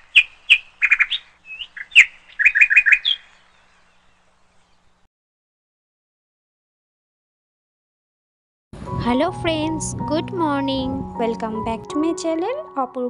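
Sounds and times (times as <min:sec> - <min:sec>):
small bird chirping: 0:00.0 - 0:05.1.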